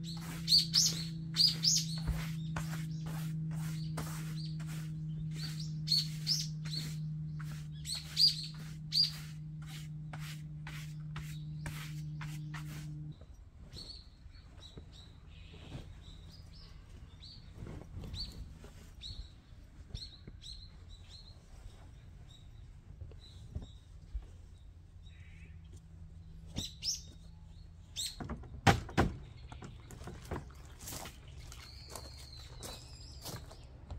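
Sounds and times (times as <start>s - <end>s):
birds chirping: 0.0s - 33.9s
steady low hum: 0.0s - 33.9s
bedding rustling: 15.6s - 19.9s.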